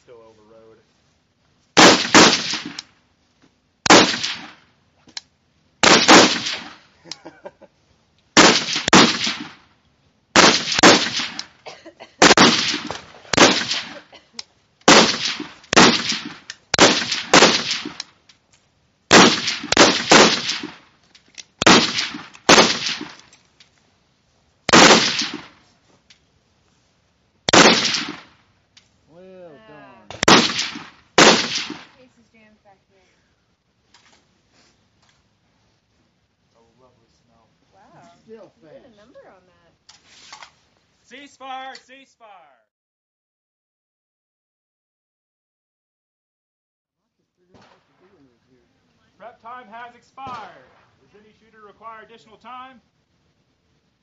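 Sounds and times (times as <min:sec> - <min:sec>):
rifle shots with echo: 0:01.8 - 0:02.8, 0:03.9 - 0:04.6, 0:05.8 - 0:06.8, 0:08.4 - 0:09.6, 0:10.4 - 0:11.5, 0:12.2 - 0:14.0, 0:14.9 - 0:18.0, 0:19.1 - 0:20.9, 0:21.6 - 0:23.2, 0:24.7 - 0:25.6, 0:27.5 - 0:28.4, 0:30.1 - 0:32.0.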